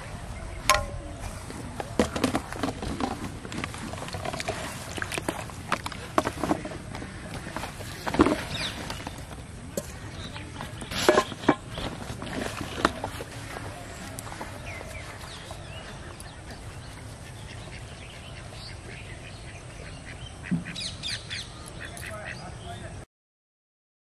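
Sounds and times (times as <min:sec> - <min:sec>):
sharp loud strikes: 0:00.6 - 0:01.2
fishing rods being handled: 0:00.6 - 0:16.7.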